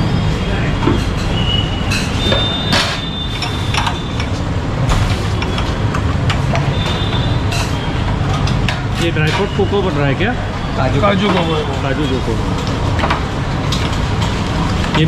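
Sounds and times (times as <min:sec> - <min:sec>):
glasses and utensils clinking: 0:00.9 - 0:04.4.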